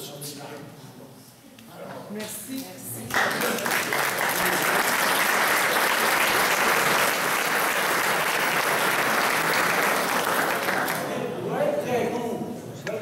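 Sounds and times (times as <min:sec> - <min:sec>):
audience applauding: 0:03.1 - 0:11.2.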